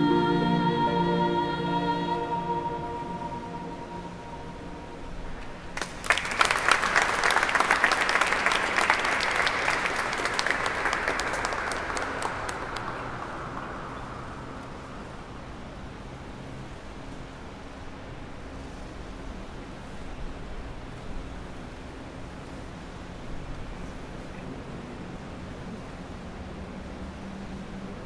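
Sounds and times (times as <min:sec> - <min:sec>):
sustained musical note: 0:00.0 - 0:05.4
audience applauding: 0:05.7 - 0:14.8.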